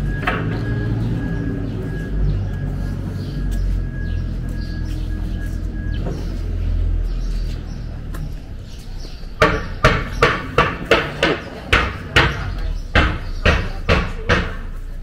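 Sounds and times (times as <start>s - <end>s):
footsteps on hard ground: 0.0s - 13.9s.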